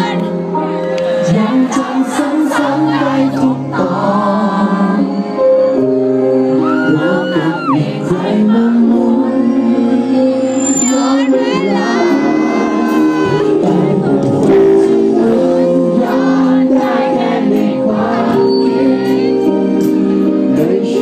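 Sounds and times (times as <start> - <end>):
live pop band playing: 0.0 - 21.0
person singing: 6.3 - 21.0.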